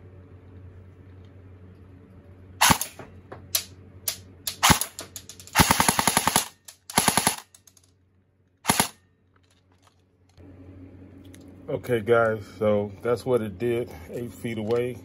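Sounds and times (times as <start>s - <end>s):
airsoft rifle firing: 2.6s - 7.6s, 8.6s - 9.0s.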